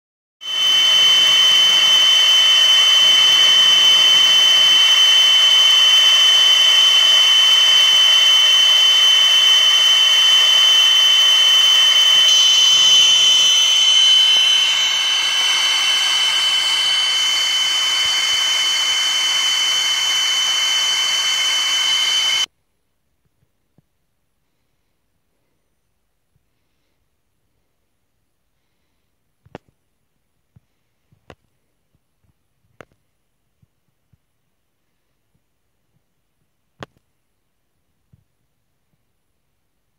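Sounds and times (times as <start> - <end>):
laser engraving machine whine: 0.4 - 22.5.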